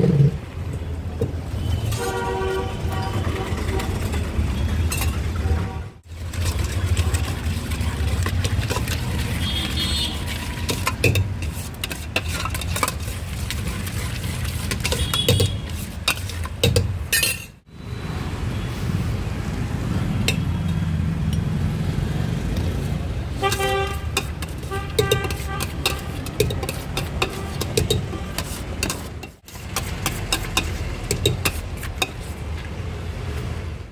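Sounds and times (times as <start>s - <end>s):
street traffic rumble: 0.0s - 33.9s
ladle scraping metal bowl: 1.8s - 17.5s, 23.3s - 32.4s.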